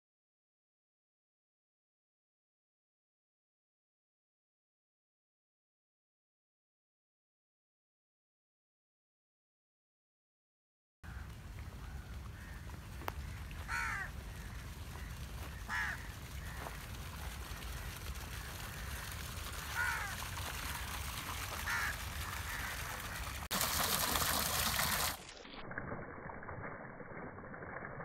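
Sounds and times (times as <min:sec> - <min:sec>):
crow cawing: 0:11.1 - 0:16.8, 0:17.7 - 0:20.9, 0:21.6 - 0:23.3
water gushing into a pond: 0:11.9 - 0:28.0.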